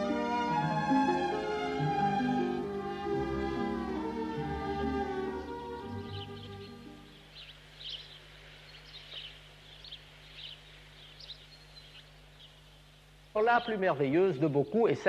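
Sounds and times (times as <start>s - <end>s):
string music: 0.0s - 7.3s
small bird chirping: 5.3s - 13.8s.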